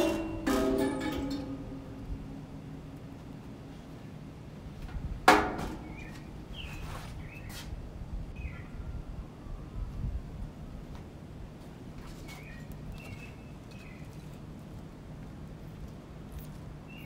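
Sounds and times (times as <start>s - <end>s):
sharp ringing knock: 0.0s - 2.5s.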